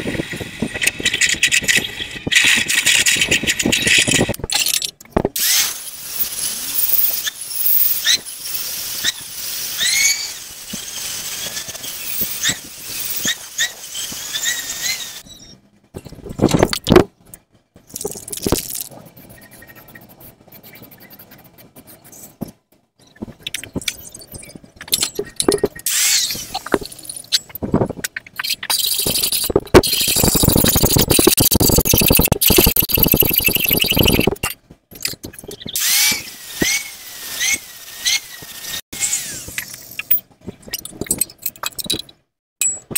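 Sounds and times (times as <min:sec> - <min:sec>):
metalworking tool noise: 0:00.7 - 0:42.9
angle grinder grinding steel: 0:05.4 - 0:15.2, 0:35.8 - 0:39.6.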